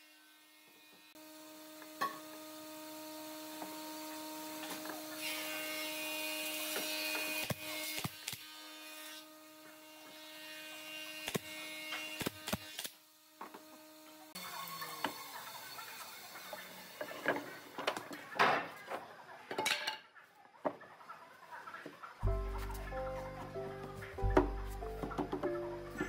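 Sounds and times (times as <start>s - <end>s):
pneumatic nailer firing: 11.2s - 13.0s
wooden boards knocking: 24.3s - 25.6s.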